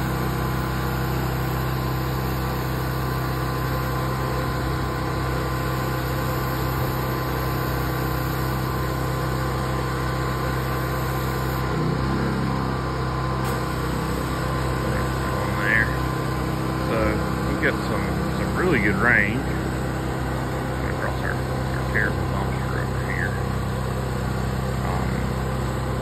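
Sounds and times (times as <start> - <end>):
pressure washer hum: 0.0 - 26.0.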